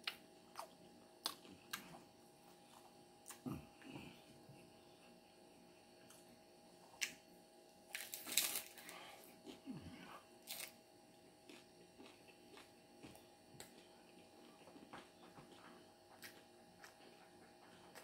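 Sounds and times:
taco shell crunching: 7.9 - 9.6, 10.4 - 10.8, 11.4 - 13.8.

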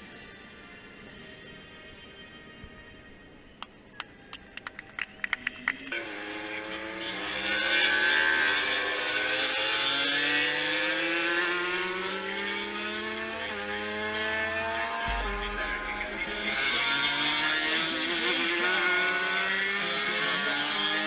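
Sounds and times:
racing motorcycle engines accelerating: 5.8 - 21.0.

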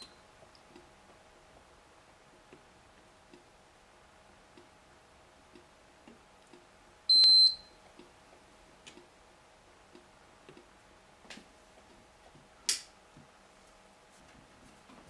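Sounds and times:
clock ticking faintly: 4.5 - 4.8, 5.4 - 6.7, 7.9 - 10.8.

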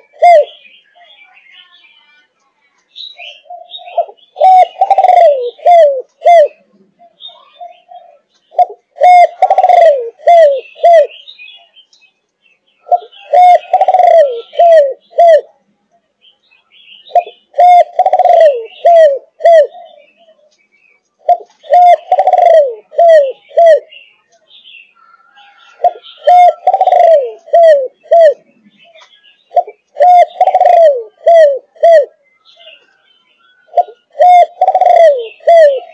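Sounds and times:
dove cooing: 0.0 - 0.7, 3.2 - 11.6, 12.8 - 15.6, 17.1 - 20.5, 21.2 - 24.0, 25.0 - 32.9, 33.6 - 35.9.

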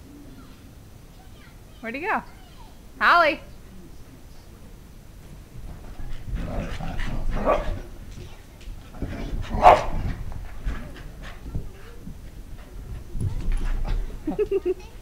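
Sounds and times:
dog barking and yipping: 6.6 - 7.8, 9.5 - 10.1.

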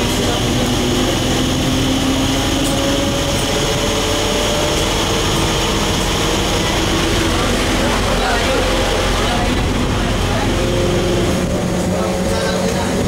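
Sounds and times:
train wheel and running noise: 0.0 - 13.0.

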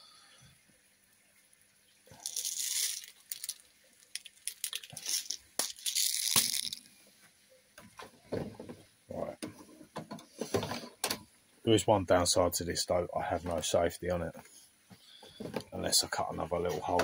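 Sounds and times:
bbs rattling in shaken bottle: 2.2 - 6.8.

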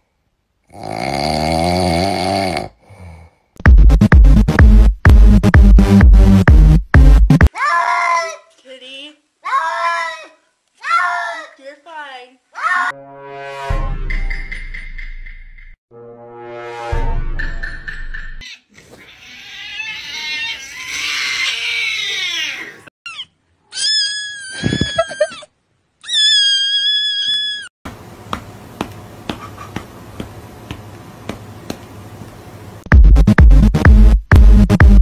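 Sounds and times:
high-pitched cat cries: 19.0 - 27.7.

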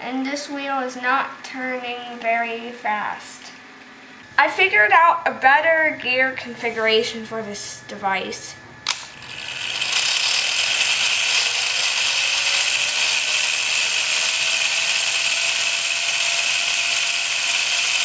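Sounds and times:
faint motor whine: 0.0 - 18.0
whirr of meshing plastic gears: 8.9 - 18.0.

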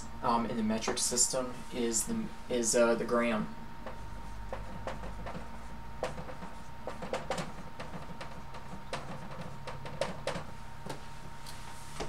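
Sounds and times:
marker writing on a whiteboard: 3.8 - 11.0.

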